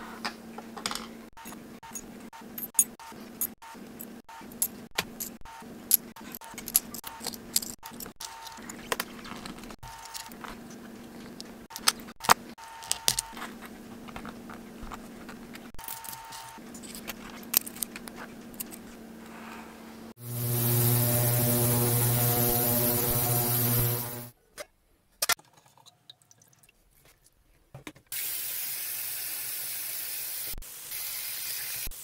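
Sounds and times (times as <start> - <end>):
metal parts clinking in mesh basket: 4.6 - 8.8.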